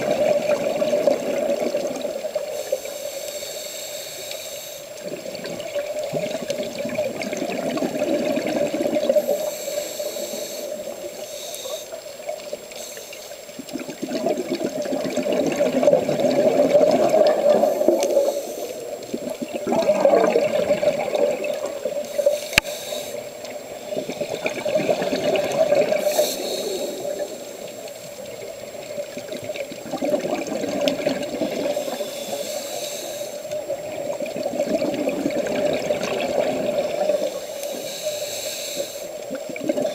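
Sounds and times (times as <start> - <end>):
muffled regulator bubbling underwater: 13.7 - 18.3, 19.1 - 22.1, 29.1 - 32.0, 33.6 - 37.4.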